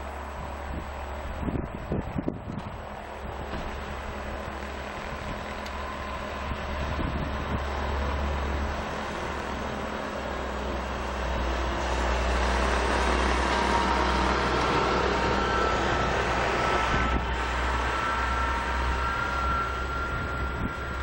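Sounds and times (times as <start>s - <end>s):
distant vehicle rumble: 0.0s - 21.0s
faint high whine: 13.5s - 21.0s.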